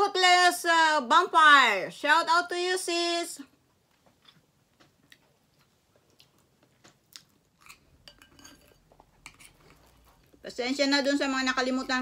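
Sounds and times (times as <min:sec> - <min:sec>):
soft chewing: 0:03.8 - 0:10.4
metal spoon scraping ceramic bowl: 0:08.0 - 0:10.1.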